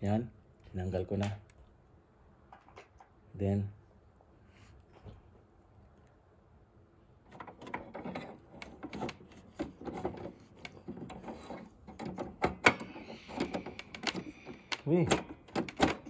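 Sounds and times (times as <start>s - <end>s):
plastic clicks and scraping: 7.3s - 16.0s.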